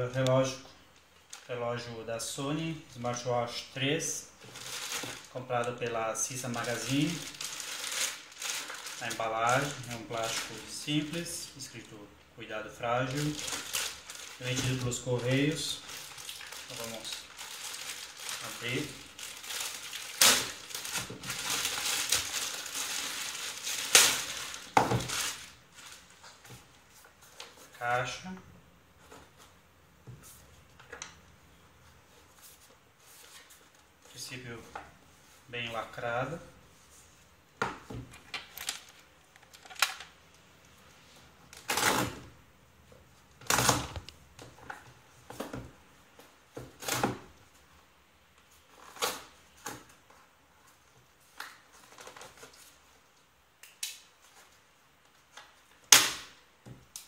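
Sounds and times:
plastic bag crinkling: 4.4s - 11.9s, 12.9s - 26.2s
sharp plastic crackles: 6.5s - 10.8s, 13.1s - 26.2s, 38.2s - 40.4s, 55.2s - 57.0s.

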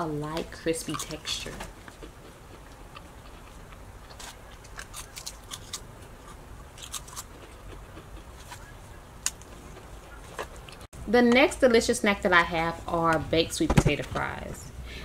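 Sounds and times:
tortilla chips crackling: 0.8s - 10.9s.

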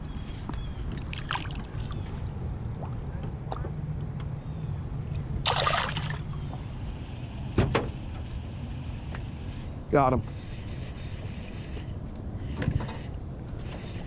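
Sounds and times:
water sloshing: 0.9s - 3.8s, 5.2s - 6.7s
fish splash: 5.4s - 6.4s.

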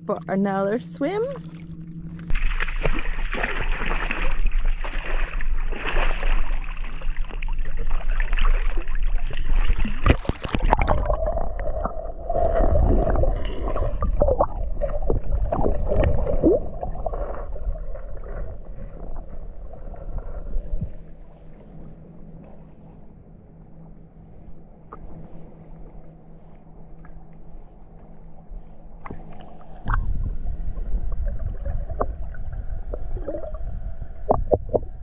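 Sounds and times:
muffled underwater gurgling: 0.0s - 23.1s, 29.0s - 35.0s
dog splashing in water: 2.3s - 7.4s.

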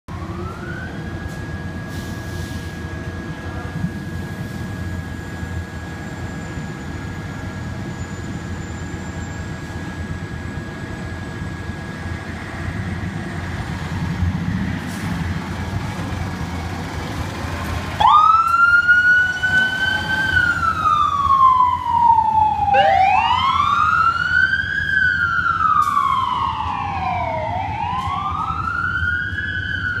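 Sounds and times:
siren wailing: 0.1s - 1.9s, 18.0s - 30.0s
fire engine diesel engine: 0.1s - 30.0s.

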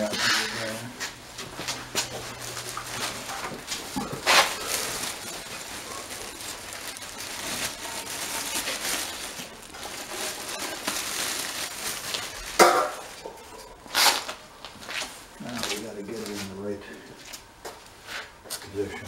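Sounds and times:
plastic bag crinkling: 1.4s - 16.6s.

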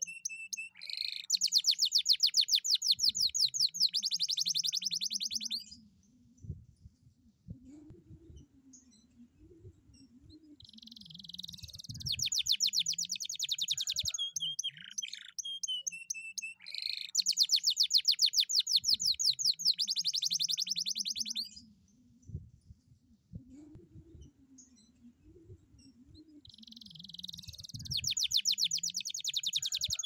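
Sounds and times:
canary singing trills: 0.0s - 5.8s, 9.9s - 21.7s, 25.8s - 30.0s.

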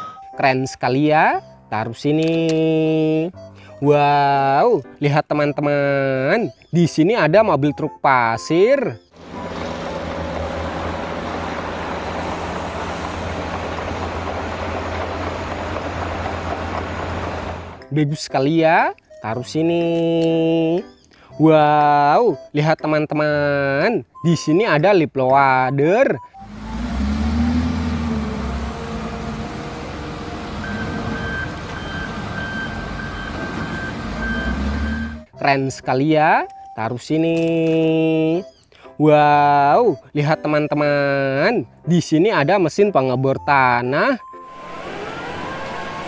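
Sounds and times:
reversing alarm beeping: 0.0s - 0.4s, 28.2s - 35.3s, 44.0s - 46.0s
diesel engine running: 9.2s - 17.8s, 26.4s - 35.3s, 44.2s - 46.0s.

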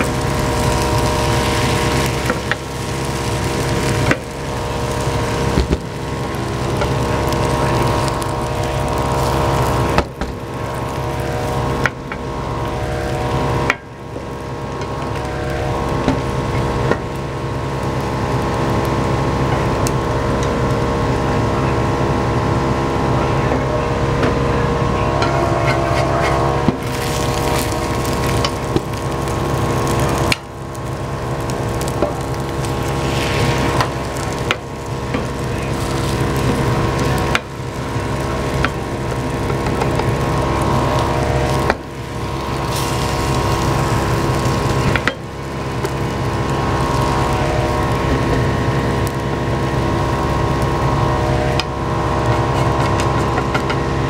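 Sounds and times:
egg poured into hot pan: 0.0s - 11.1s, 26.8s - 47.3s
egg sizzling in a pan: 0.0s - 22.9s, 25.8s - 54.0s
exhaust fan humming: 0.0s - 54.0s.

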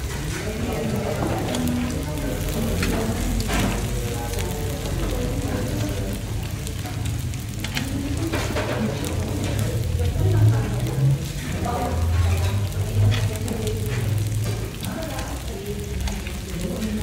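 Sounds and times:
seafood and meat sizzling on grill: 0.0s - 17.0s.

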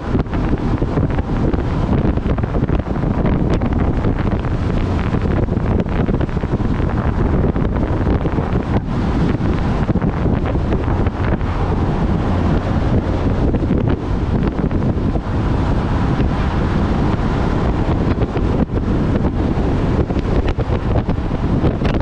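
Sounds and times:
road noise: 0.0s - 22.0s
wind buffeting microphone: 0.0s - 22.0s.

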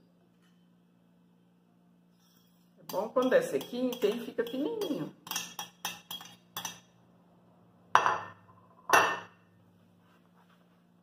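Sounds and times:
dishes clinking: 2.2s - 6.9s, 8.0s - 9.4s
spatula tapping a plate: 2.9s - 6.9s.

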